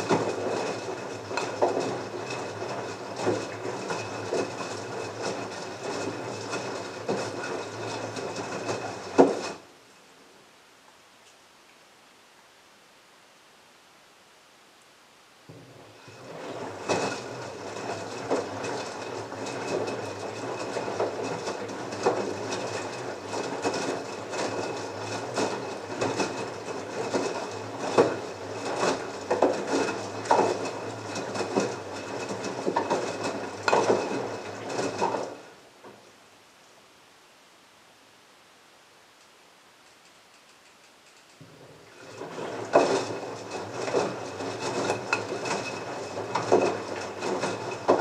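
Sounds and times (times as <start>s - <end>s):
washing machine motor hum: 0.0s - 9.7s, 15.5s - 35.9s, 41.4s - 48.0s.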